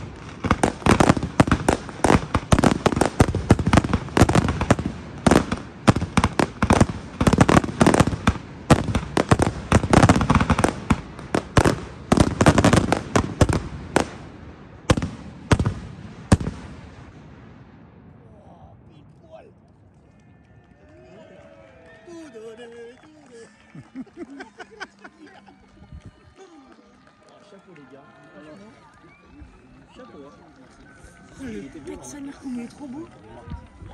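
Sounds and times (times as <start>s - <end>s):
fireworks bangs: 0.0s - 18.9s.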